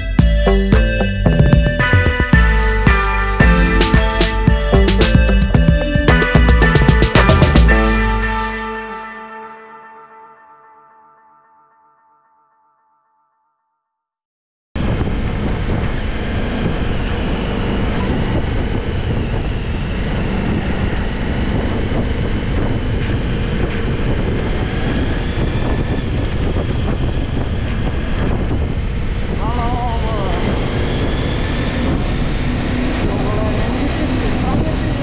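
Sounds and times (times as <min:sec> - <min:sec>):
motorcycle engine running: 0:00.1 - 0:08.1
wind rushing over microphone: 0:14.8 - 0:35.0.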